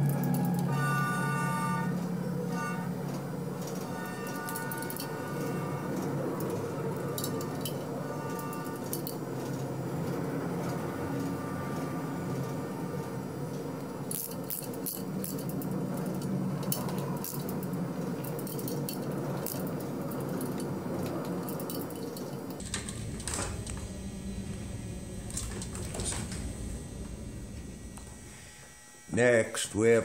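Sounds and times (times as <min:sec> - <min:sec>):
low hum: 0:00.0 - 0:29.5
metal clinks: 0:04.2 - 0:05.3, 0:06.4 - 0:09.6, 0:14.1 - 0:23.0.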